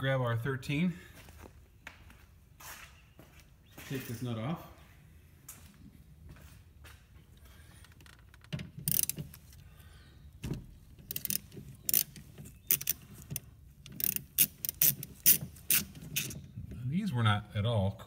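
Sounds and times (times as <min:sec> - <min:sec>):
ratchet wrench clicking: 0:08.8 - 0:09.4, 0:11.1 - 0:16.4.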